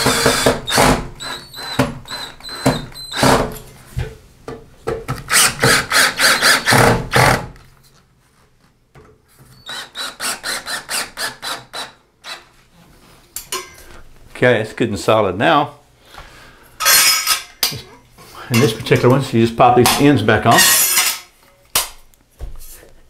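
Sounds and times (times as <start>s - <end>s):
cordless drill driving screws: 0.0s - 3.6s, 5.3s - 7.4s, 9.6s - 12.4s.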